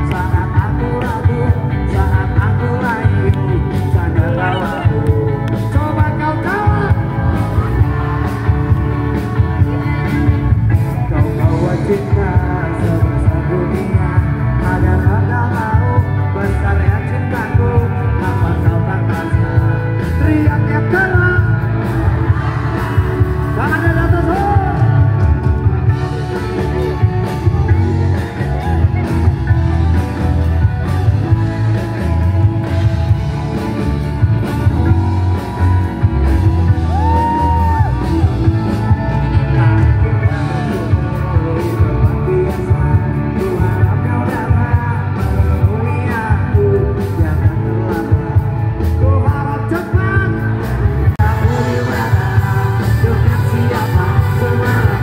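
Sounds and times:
heavy bass: 0.0 - 55.0
person singing: 0.0 - 55.0
steady drum beat: 16.6 - 55.0.

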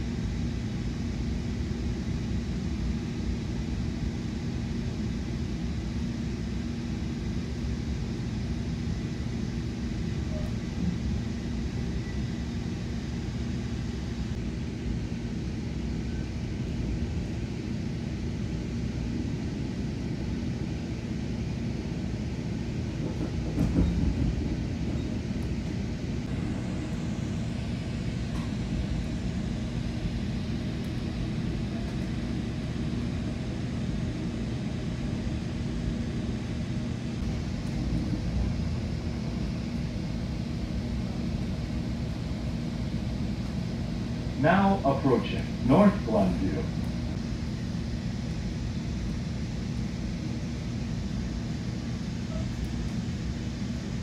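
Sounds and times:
train rumbling on rails: 0.0 - 15.4, 18.2 - 54.0
train clatter: 23.0 - 25.8
steady hum: 24.4 - 54.0.

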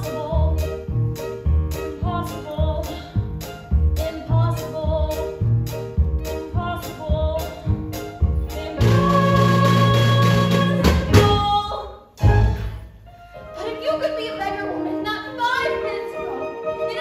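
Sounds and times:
woman singing: 8.5 - 12.0.

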